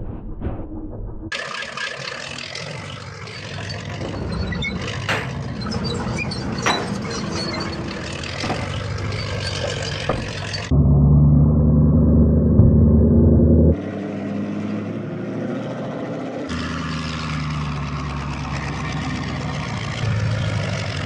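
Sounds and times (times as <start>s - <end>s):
low hum of drive motors: 1.3s - 21.0s.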